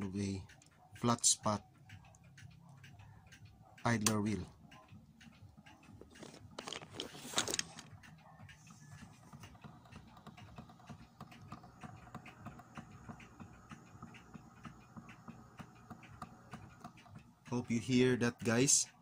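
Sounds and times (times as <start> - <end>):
rhythmic tapping thumps: 0.0 - 6.8, 7.7 - 19.0
pendulum clocks ticking: 0.0 - 19.0
record player rumble: 5.9 - 18.8.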